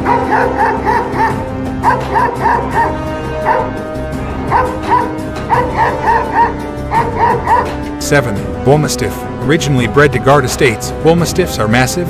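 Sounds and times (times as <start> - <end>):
dog barking: 0.0 - 7.8
background music with held notes: 0.0 - 12.0.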